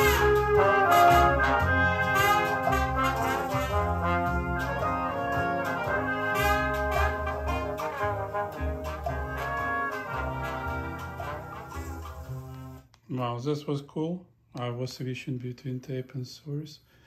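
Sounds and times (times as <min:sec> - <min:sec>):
music over loudspeakers: 0:00.0 - 0:12.6.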